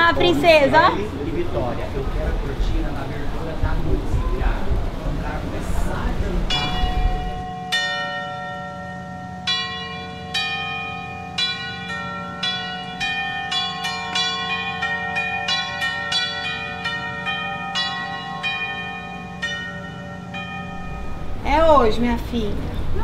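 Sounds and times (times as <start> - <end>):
bells ringing a slow melody: 0.0 - 23.0.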